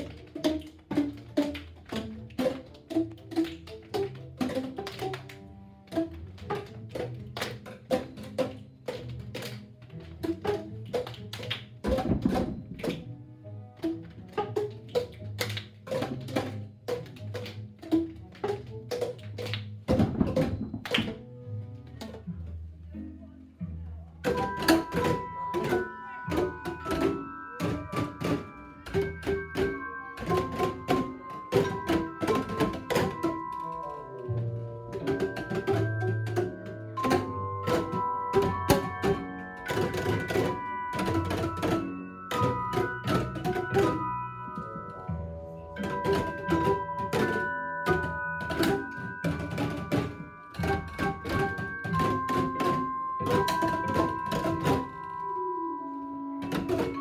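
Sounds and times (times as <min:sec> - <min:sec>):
hollow pitched tube knocks: 0:11.8 - 0:13.1
melody of held notes: 0:24.3 - 0:57.0.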